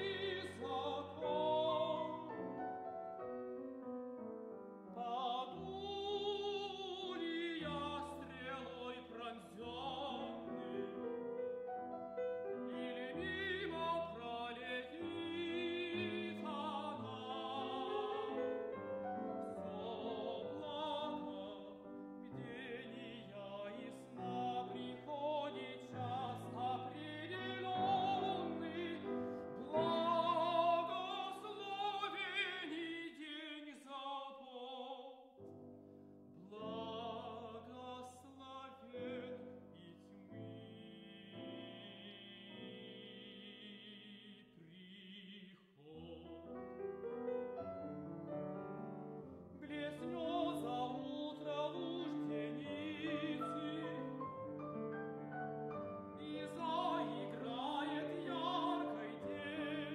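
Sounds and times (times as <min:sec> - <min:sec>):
tenor singing opera: 0:00.0 - 0:03.4, 0:04.8 - 0:35.3, 0:36.4 - 0:47.2, 0:48.7 - 0:59.9
piano accompaniment: 0:00.0 - 0:33.0, 0:46.1 - 0:59.9.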